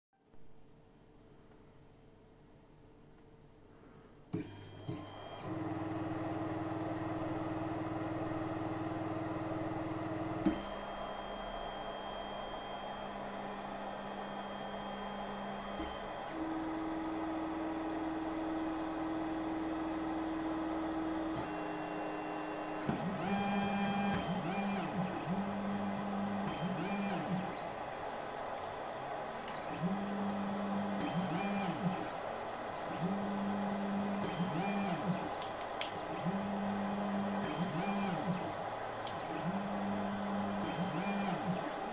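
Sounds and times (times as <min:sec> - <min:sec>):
stepper motors whining: 0:21.0 - 0:41.9.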